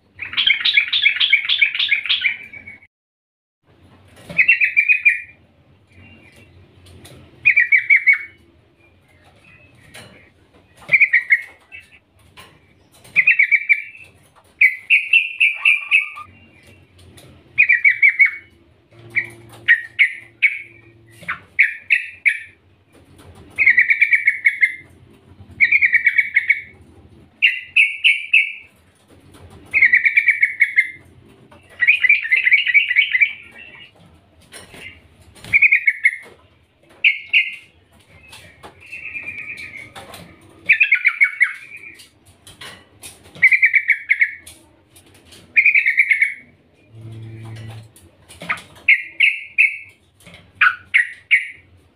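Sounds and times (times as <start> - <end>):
bird chattering calls: 13.1 - 16.7, 17.6 - 22.6, 23.6 - 25.0, 25.6 - 26.7, 29.7 - 33.9, 37.0 - 42.1, 43.3 - 44.5, 45.5 - 46.6, 48.5 - 49.9.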